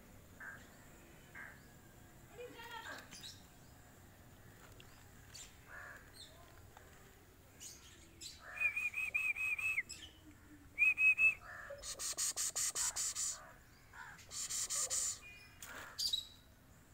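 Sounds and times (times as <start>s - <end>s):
bird high whistled notes: 8.6s - 10.0s, 14.3s - 15.3s.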